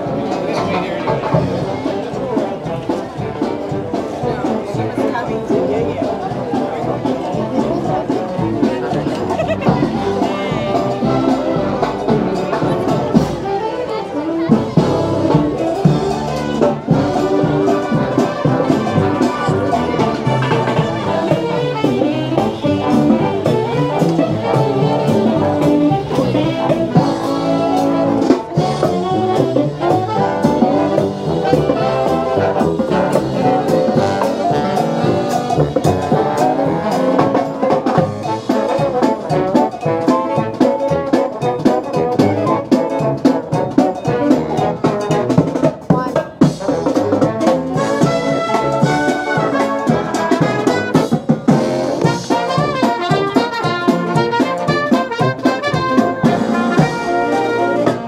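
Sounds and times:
drum beat: 0:00.0 - 0:13.6, 0:14.5 - 0:58.0
marching brass band playing: 0:00.0 - 0:58.0.

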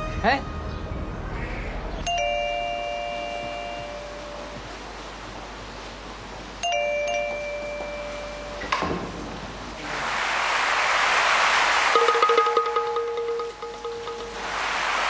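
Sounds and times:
two-tone doorbell chime: 0:02.0 - 0:04.7, 0:06.6 - 0:09.0
hiss: 0:09.8 - 0:12.9, 0:14.0 - 0:15.0.

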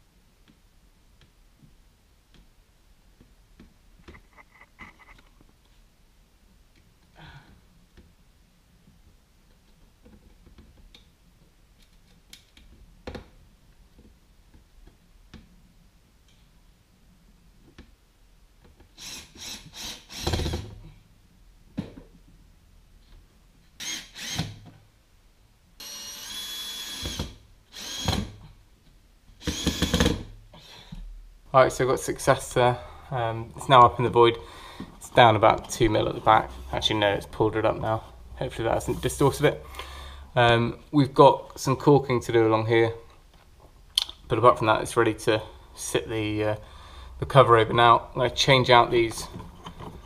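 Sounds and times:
cordless drill motor whine: 0:23.8 - 0:24.5, 0:25.8 - 0:28.2, 0:29.4 - 0:30.1.

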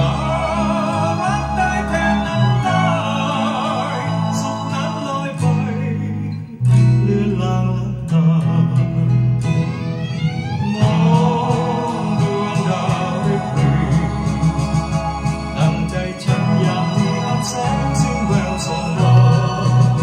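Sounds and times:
instrumental music from vinyl record: 0:09.6 - 0:20.0.

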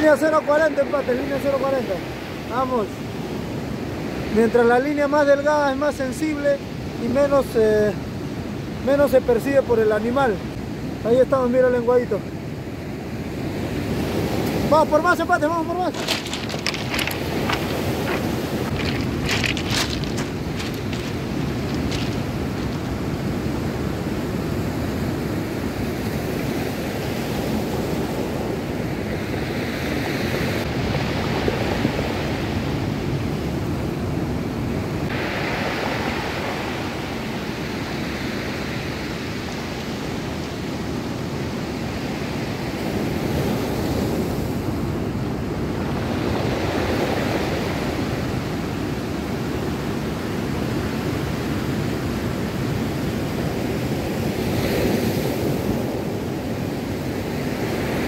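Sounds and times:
surf breaking on stony beach: 0:13.4 - 0:49.2.

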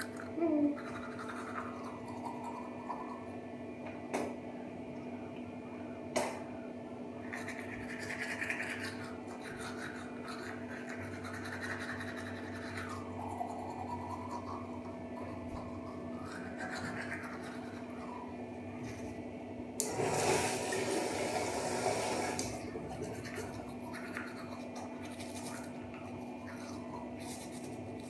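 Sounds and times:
toothbrush scrubbing teeth: 0:00.0 - 0:03.4, 0:07.2 - 0:19.2, 0:22.7 - 0:28.0
steady low hum: 0:00.0 - 0:28.0.

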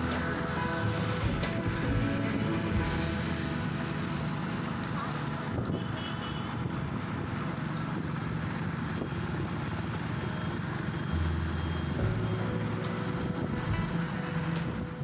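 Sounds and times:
engine and tyre rumble: 0:00.0 - 0:15.0
deep low hum: 0:11.2 - 0:15.0.

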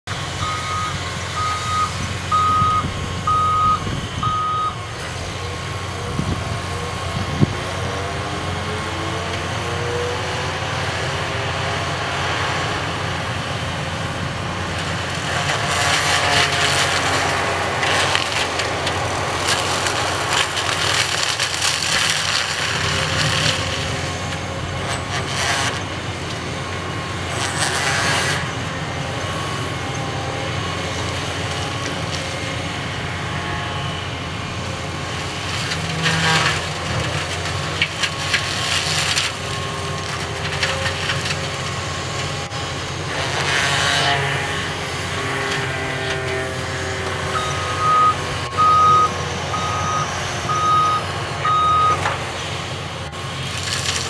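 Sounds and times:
diesel engine droning: 0:00.1 - 0:54.0
saw splintering wood: 0:15.0 - 0:26.0, 0:27.3 - 0:28.7, 0:35.6 - 0:41.4, 0:43.0 - 0:47.4.

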